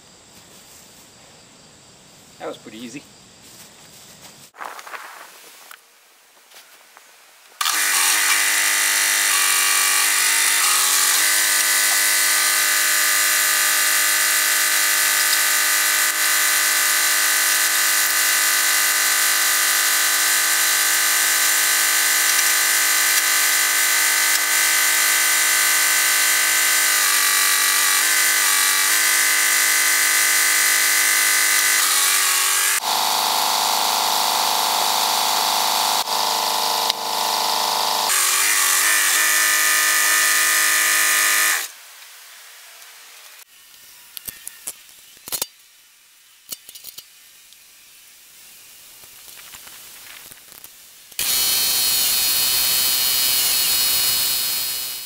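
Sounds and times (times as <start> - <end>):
tractor engine high buzz: 7.6 - 41.7.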